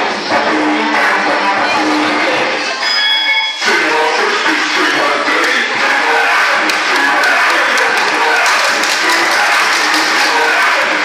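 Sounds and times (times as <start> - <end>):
hip-hop dance music: 0.0 - 11.0
crowd cheering and clapping: 3.7 - 11.0.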